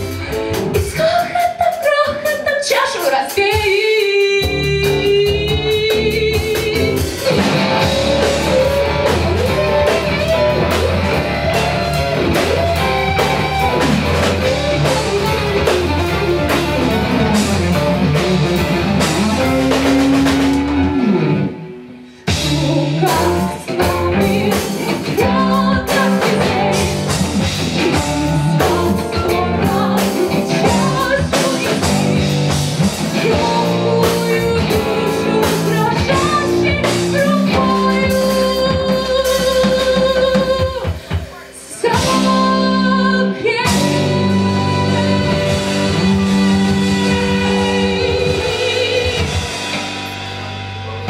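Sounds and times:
live band playing: 0.0s - 51.0s
woman singing: 0.7s - 11.8s, 22.3s - 49.7s.

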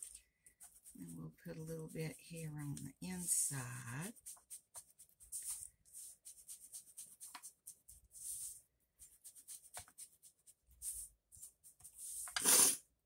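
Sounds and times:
ink dabbed onto paper: 4.1s - 12.7s
person sniffing: 12.3s - 12.9s.

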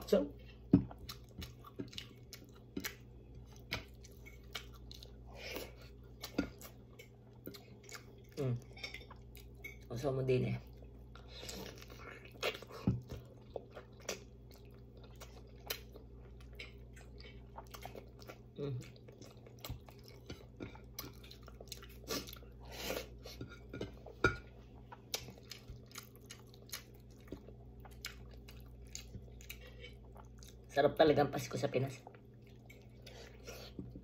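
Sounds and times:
faint low hum: 0.0s - 34.0s
person chewing: 0.4s - 9.9s, 10.6s - 30.7s, 32.0s - 34.0s.

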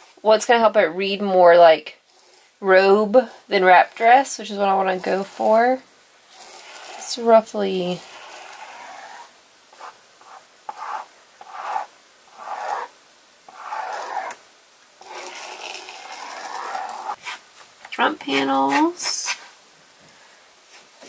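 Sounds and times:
pencil scratching on paper: 6.3s - 7.2s, 7.9s - 12.9s, 13.5s - 14.4s, 15.0s - 17.4s.

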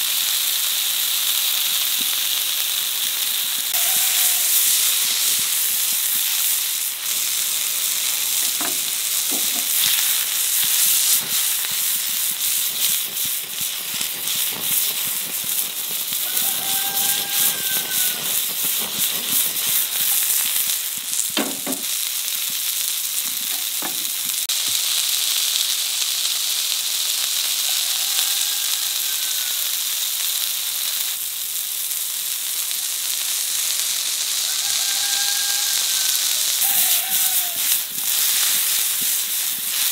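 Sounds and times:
patties sizzling in oil: 0.0s - 39.9s
sharp knocks: 21.4s - 21.9s.

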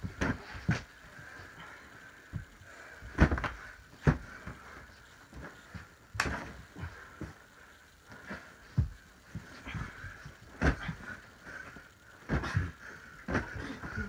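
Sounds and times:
pillows thumping in pillow fight: 0.0s - 1.0s, 2.3s - 4.6s, 5.3s - 7.4s, 8.1s - 14.0s.

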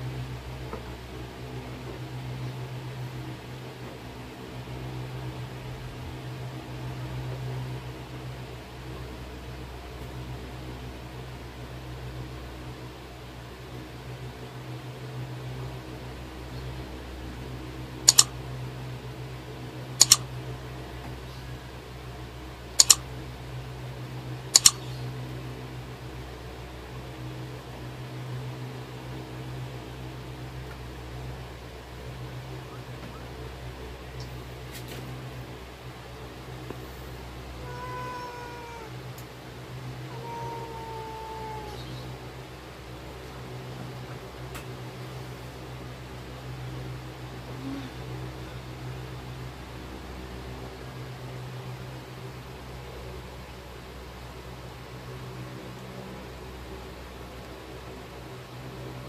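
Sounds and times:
low machine hum with hiss: 0.0s - 59.0s
mouse double clicks: 18.1s - 18.3s, 20.0s - 20.2s, 22.8s - 23.0s, 24.6s - 24.9s.

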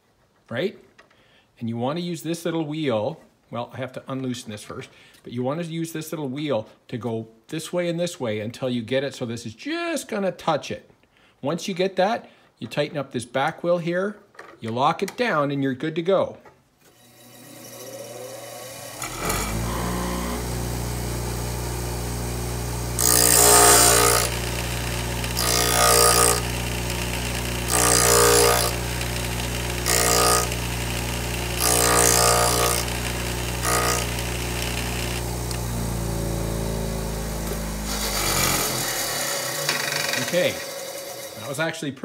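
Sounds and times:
drill bit grinding rasp: 17.0s - 20.7s, 23.0s - 35.8s, 37.1s - 41.5s
bench grinder motor humming: 17.0s - 41.4s.

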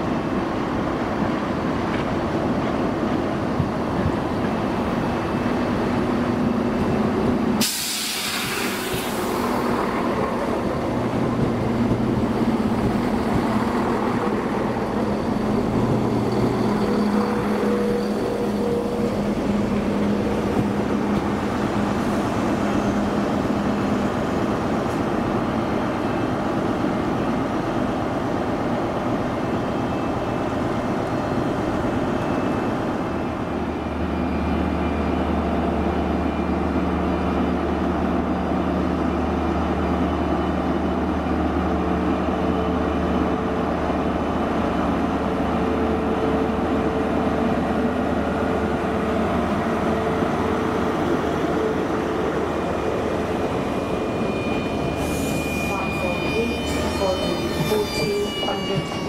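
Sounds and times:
train running past platform: 0.0s - 59.0s
higher steady tone: 52.0s - 59.0s.

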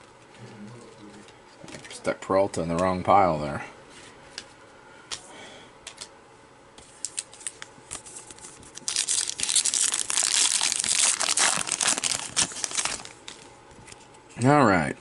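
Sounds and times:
foil wrapper crinkling and tearing: 7.1s - 13.5s.

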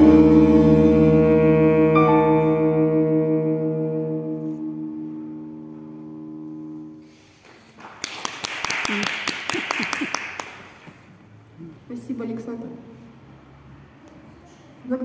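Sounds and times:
tenor saxophone long note: 0.0s - 7.3s
audience applauding: 7.3s - 11.0s.

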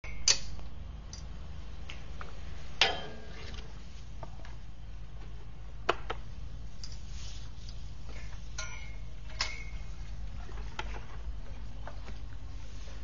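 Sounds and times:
steady low hum: 0.0s - 13.0s
metal gate clanking: 2.8s - 3.5s.

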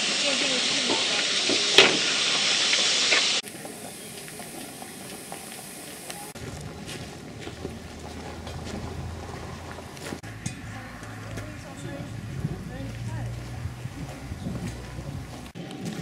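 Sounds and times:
steam hissing: 0.0s - 6.5s.

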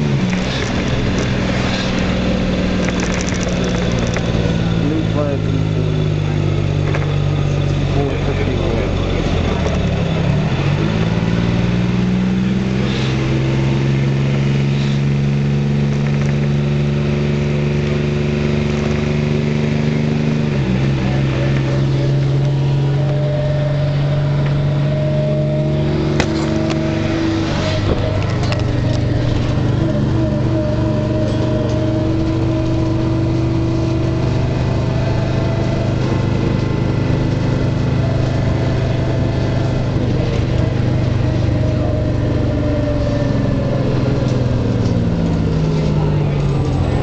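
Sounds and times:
rattles and clunks: 0.0s - 4.9s, 6.8s - 7.4s, 26.0s - 34.8s
bus engine drone: 0.0s - 47.0s.

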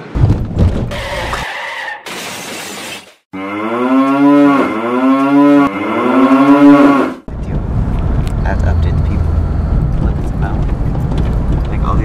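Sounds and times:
cow mooing: 3.4s - 7.2s.

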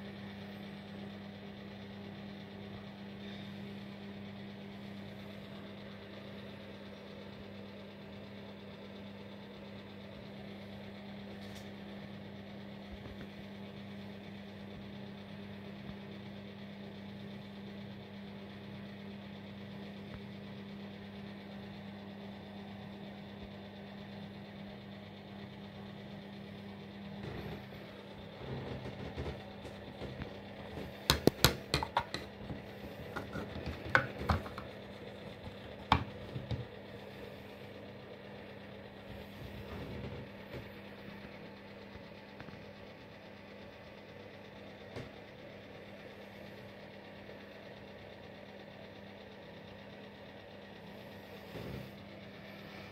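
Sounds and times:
low steady hum: 18.8s - 48.9s
sharp irregular clicks and knocks: 28.4s - 34.7s.

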